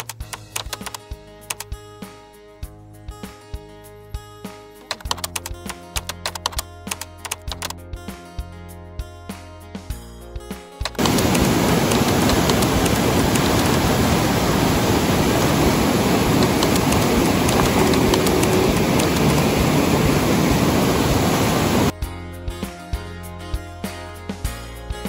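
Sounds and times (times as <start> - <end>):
water rushing over rocks: 11.0 - 21.9.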